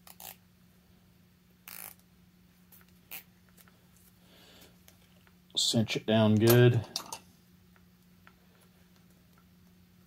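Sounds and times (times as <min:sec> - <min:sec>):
zip tie rasp: 0:00.0 - 0:00.4, 0:01.6 - 0:02.0, 0:03.1 - 0:03.3
low steady hum: 0:00.0 - 0:10.0
zip tie click: 0:01.6 - 0:02.0.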